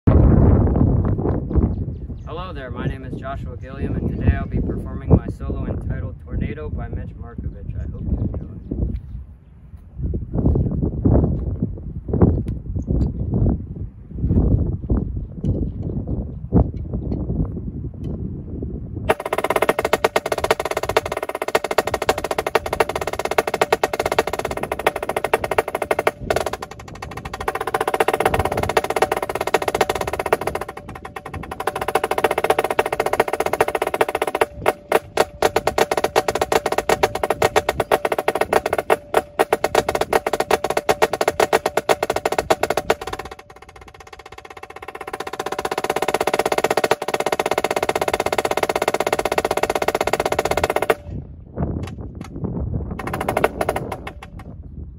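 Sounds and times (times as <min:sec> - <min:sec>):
snare drum rolls: 0:19.1 - 0:51.1, 0:53.0 - 0:54.5.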